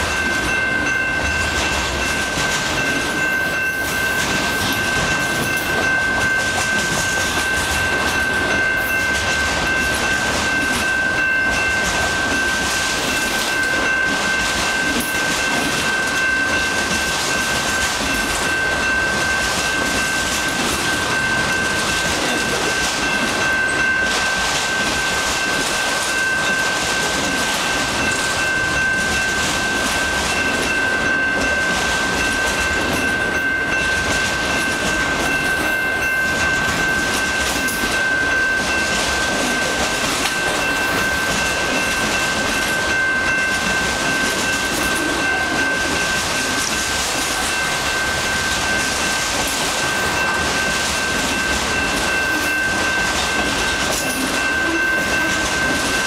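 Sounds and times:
train wheels rolling on rails: 0.0s - 56.0s.

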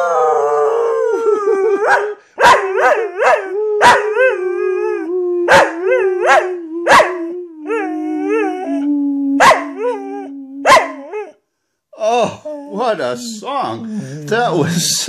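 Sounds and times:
dog howling: 0.0s - 11.4s.

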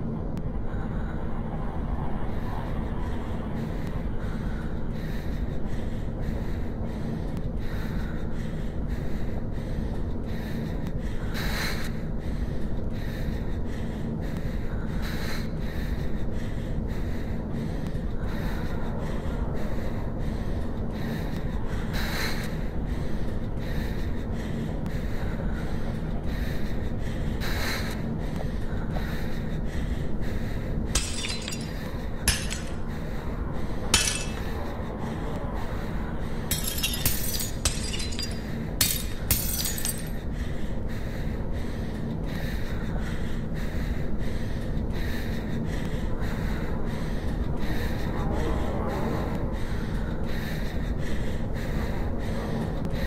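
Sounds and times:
steady low rumble: 0.0s - 53.0s
glass shattering: 31.0s - 32.8s, 34.0s - 34.5s, 36.5s - 40.1s.

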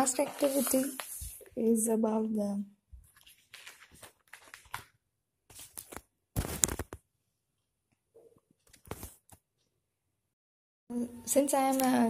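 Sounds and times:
plastic sheets rustling and crinkling: 0.0s - 1.5s, 3.0s - 7.0s, 8.7s - 9.3s.

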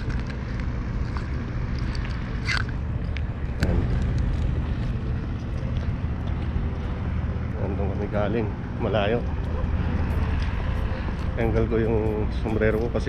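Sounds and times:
highway traffic rumble: 0.0s - 13.0s.

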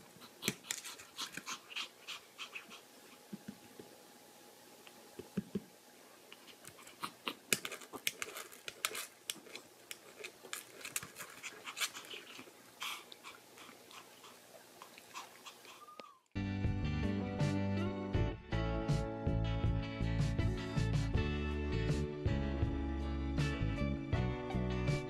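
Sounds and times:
small dogs panting: 0.0s - 3.4s, 11.1s - 16.2s.

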